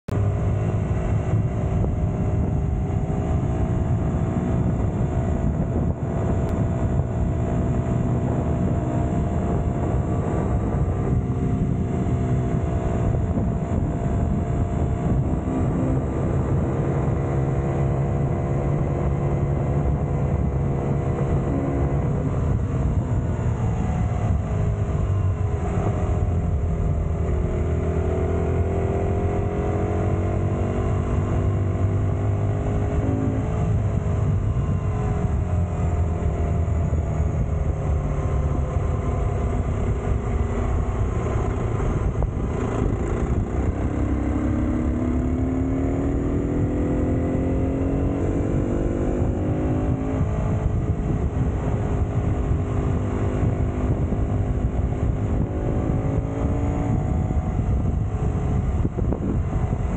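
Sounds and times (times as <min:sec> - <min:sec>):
motorcycle engine running: 0:00.1 - 0:59.9
wind rush on microphone: 0:00.1 - 0:59.9.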